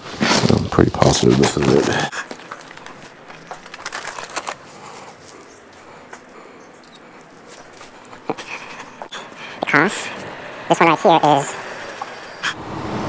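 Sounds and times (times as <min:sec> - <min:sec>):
footsteps on concrete: 0:00.0 - 0:03.9, 0:04.5 - 0:10.3
clothing and gear rustling: 0:00.0 - 0:09.2.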